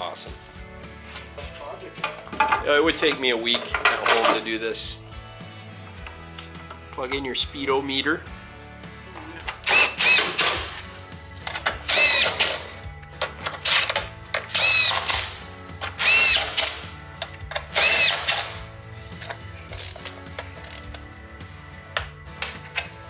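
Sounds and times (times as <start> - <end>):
cordless driver motor whirring: 14.5 - 15.2, 15.9 - 16.8, 17.7 - 18.6.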